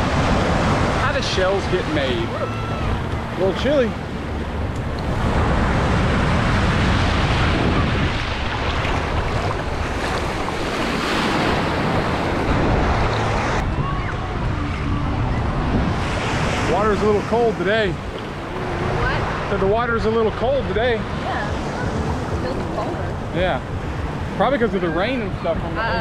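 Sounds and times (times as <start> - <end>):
surf breaking in shallows: 0.0 - 25.5
wind rumbling on microphone: 0.0 - 26.0.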